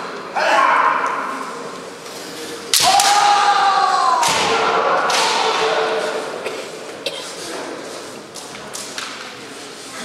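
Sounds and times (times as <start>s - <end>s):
bamboo sword strike crack: 2.7s - 3.4s.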